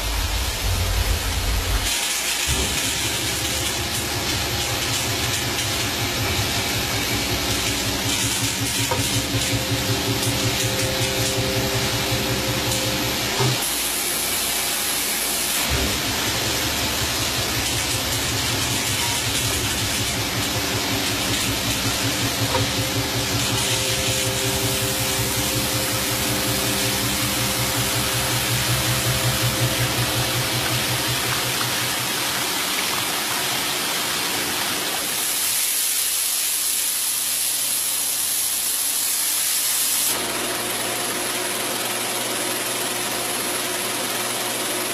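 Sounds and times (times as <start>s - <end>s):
coin-minting machinery drone: 0.0s - 35.6s.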